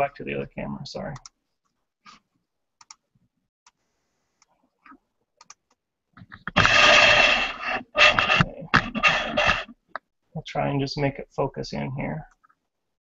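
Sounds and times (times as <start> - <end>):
webcam being handled and scraped: 6.2 - 9.8.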